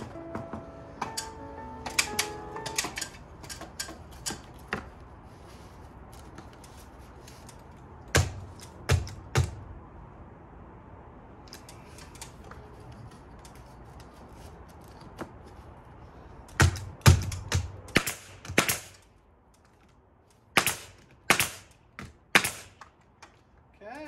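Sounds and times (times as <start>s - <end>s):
pneumatic staple gun shots: 1.9s - 4.4s, 16.6s - 19.0s, 20.6s - 21.7s, 22.3s - 22.8s.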